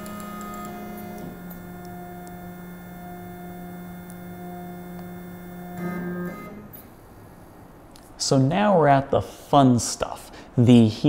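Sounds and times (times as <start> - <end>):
stepper motors humming: 0.0 - 8.0.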